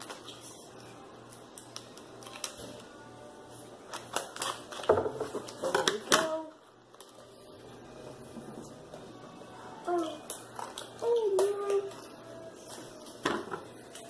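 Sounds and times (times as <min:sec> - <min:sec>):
stiff plastic crackling: 0:00.0 - 0:03.0, 0:03.8 - 0:07.6, 0:09.8 - 0:14.0
scissors cutting plastic: 0:01.3 - 0:02.9, 0:03.9 - 0:07.2.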